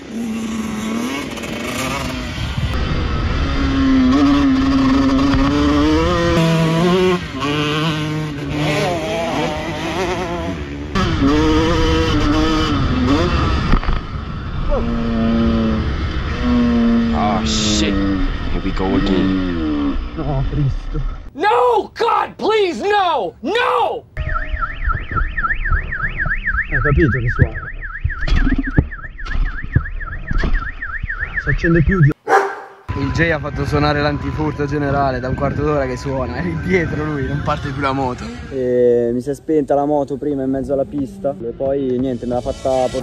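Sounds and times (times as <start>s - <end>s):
motocross bike engine revving: 0.0s - 20.4s
alarm siren wailing: 24.2s - 37.7s.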